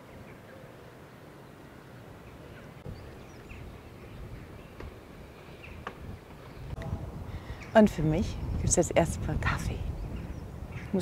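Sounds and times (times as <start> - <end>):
bird chirps: 2.2 - 6.8
wind buffeting microphone: 2.6 - 11.0.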